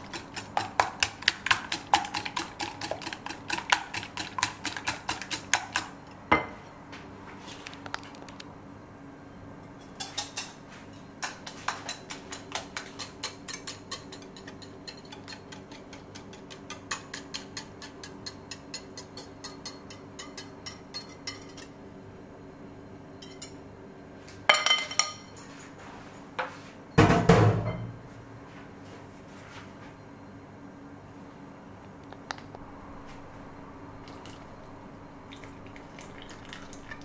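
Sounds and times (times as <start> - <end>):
kitchenware clattering on glass: 24.5 - 25.4.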